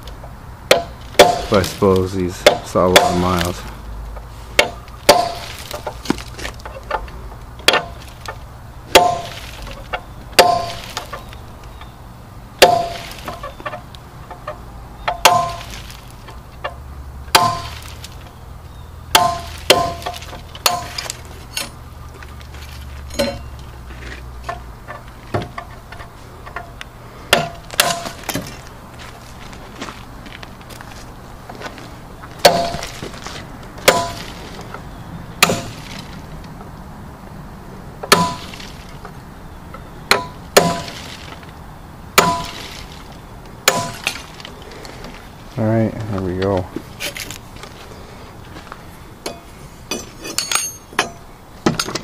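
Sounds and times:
hammer striking steel punch: 0.7s - 1.6s, 2.4s - 3.3s, 4.6s - 5.5s, 8.9s - 9.3s, 10.4s - 10.8s, 12.6s - 13.1s, 15.1s - 15.7s, 17.3s - 17.8s, 19.1s - 21.0s, 23.1s - 23.5s, 27.3s - 28.2s, 32.4s - 32.9s, 33.9s - 34.2s, 35.4s - 35.8s, 38.0s - 38.6s, 40.1s - 41.0s, 42.2s - 42.6s, 43.7s - 44.2s.

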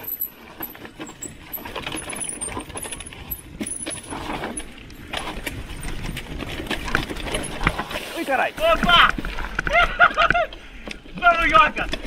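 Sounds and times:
bike rattling and clicking: 0.0s - 12.0s.

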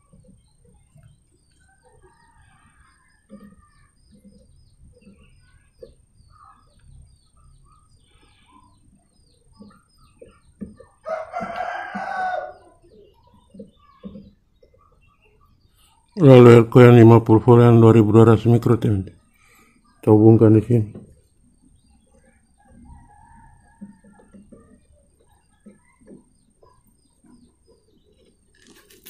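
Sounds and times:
rooster crowing: 11.0s - 12.8s
small high chirps: 21.3s - 29.0s.

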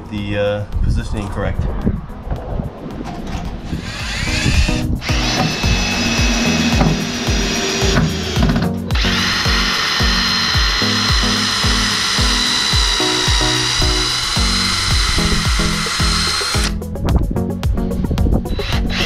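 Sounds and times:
background music with steady beat: 0.0s - 19.0s
cordless drill whining: 3.8s - 16.8s, 18.5s - 19.0s.

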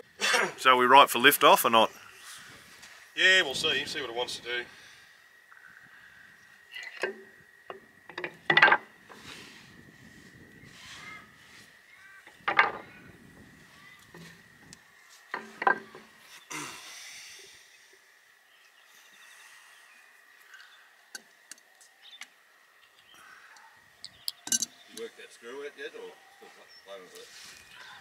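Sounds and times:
hand tools knocking and clinking: 8.1s - 8.8s, 24.4s - 24.8s.

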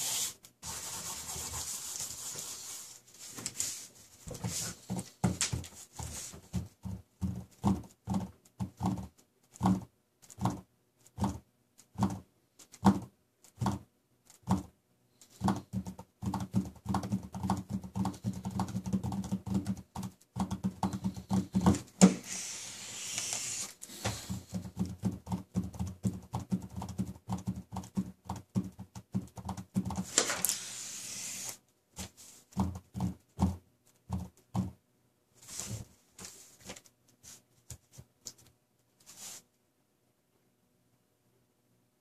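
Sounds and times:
marker scratching strokes: 0.0s - 6.7s, 14.4s - 34.4s
markers tapping on paper: 4.3s - 30.7s, 32.5s - 34.8s.

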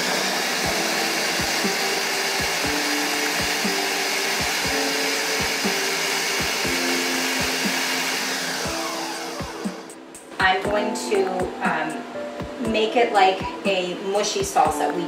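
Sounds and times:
blender running: 0.0s - 10.0s.

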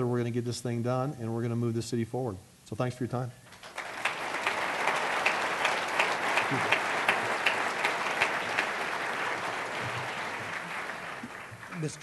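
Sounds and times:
audience applauding: 3.5s - 12.0s.

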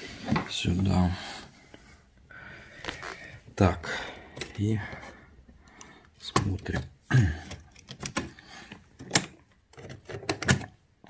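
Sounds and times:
hands clicking and knocking on metal: 5.8s - 10.8s.

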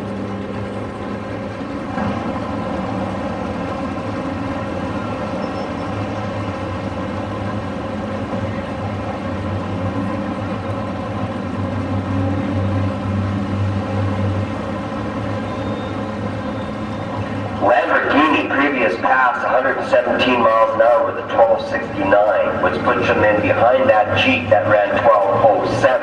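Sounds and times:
car engines idling: 0.0s - 26.0s.

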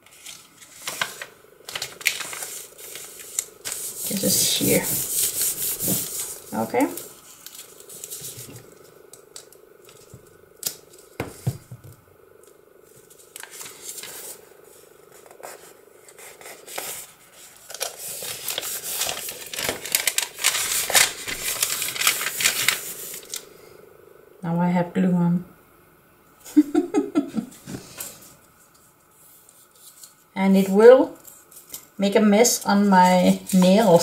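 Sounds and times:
paper rustling and rubbing: 0.0s - 9.0s, 13.0s - 23.4s, 29.1s - 31.8s, 32.4s - 34.0s
paper taps and rustles: 0.2s - 3.8s.

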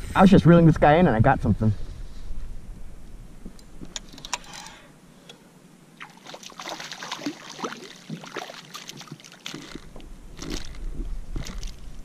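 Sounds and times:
fish splashing in water: 6.0s - 9.9s.

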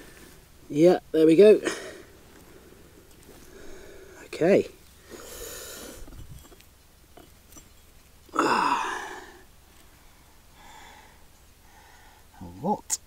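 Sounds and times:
person breathing out: 3.5s - 4.2s, 5.0s - 6.2s, 8.3s - 9.5s, 10.6s - 12.3s.

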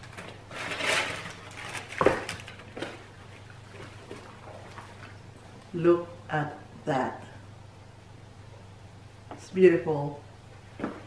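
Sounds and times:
tissue paper rustling: 0.1s - 3.0s.

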